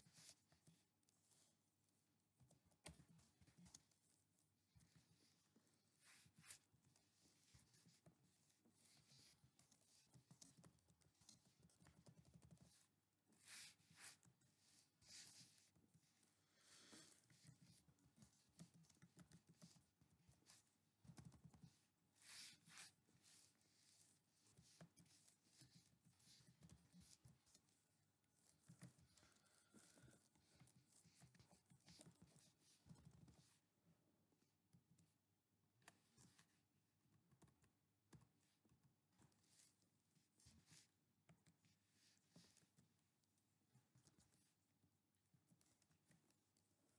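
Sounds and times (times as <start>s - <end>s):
faint keyboard typing: 2.2s - 34.0s, 35.8s - 46.9s.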